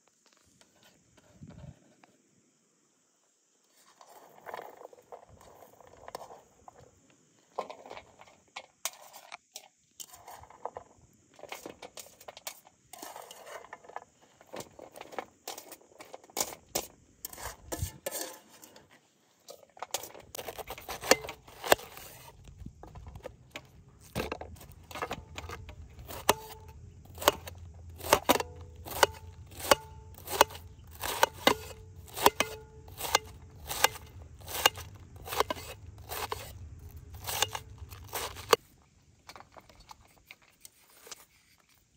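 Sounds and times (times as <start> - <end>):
blade clicking on metal tray: 24.9 - 38.6
knife slicing cabbage: 26.0 - 38.6.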